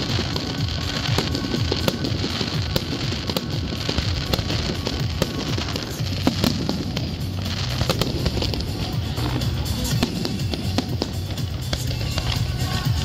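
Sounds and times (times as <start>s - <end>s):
fireworks popping and banging: 0.0s - 13.0s
music playing: 0.0s - 13.0s.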